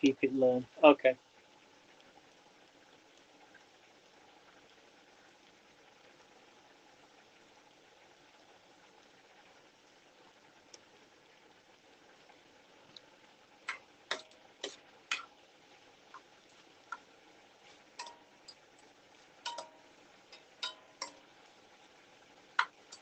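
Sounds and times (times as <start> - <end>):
metal tongs clinking on pan: 13.7 - 15.3, 18.0 - 18.6, 19.4 - 21.2.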